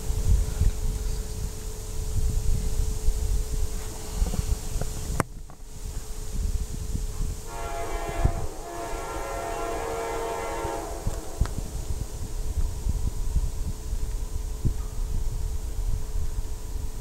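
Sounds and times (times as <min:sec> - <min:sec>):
locomotive air horn chord: 0:07.2 - 0:12.5.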